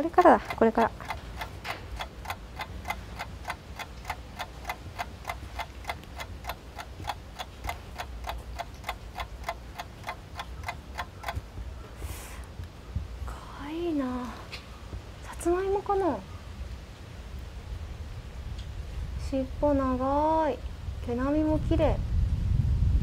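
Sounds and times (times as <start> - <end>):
clock-like ticking: 0.0 - 11.5.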